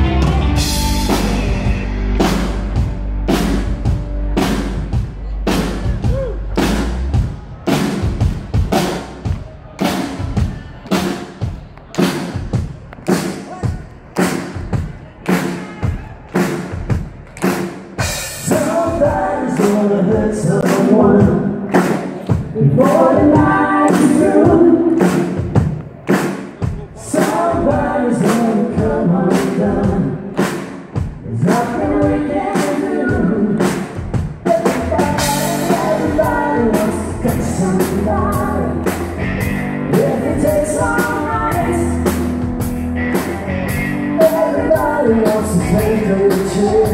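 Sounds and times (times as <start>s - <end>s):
country band playing: 0.0s - 12.5s, 17.4s - 46.9s
drum kit beat: 0.0s - 46.9s
man singing: 18.4s - 25.3s, 26.8s - 30.4s, 31.2s - 39.1s, 39.8s - 42.1s, 44.0s - 46.9s.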